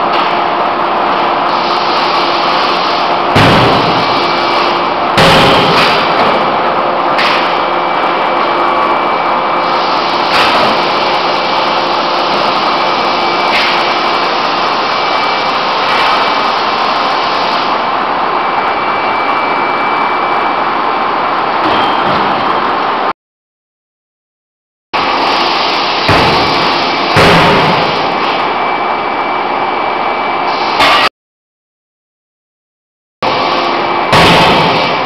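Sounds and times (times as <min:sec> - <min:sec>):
shop machinery drone: 0:00.0 - 0:23.1, 0:25.0 - 0:31.1, 0:33.2 - 0:35.0
forging hammer striking steel: 0:03.3 - 0:04.4, 0:05.2 - 0:06.5, 0:26.1 - 0:28.2, 0:34.1 - 0:35.0.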